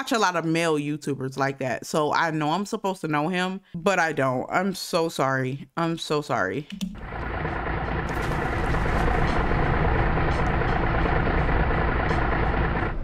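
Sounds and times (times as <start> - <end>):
heavy vehicle engine rumbling: 7.0 - 13.0.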